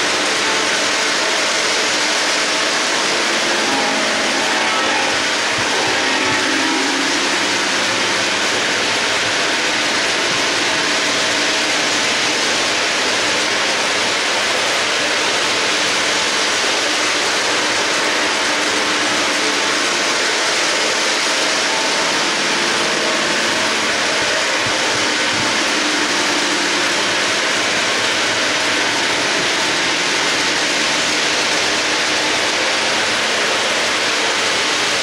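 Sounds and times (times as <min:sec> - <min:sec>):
model train rolling on metal rails: 0:00.0 - 0:35.0.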